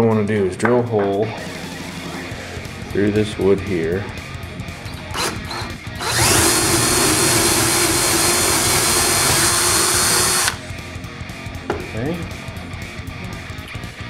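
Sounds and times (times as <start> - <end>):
cordless drill boring through wood: 5.2 - 10.6.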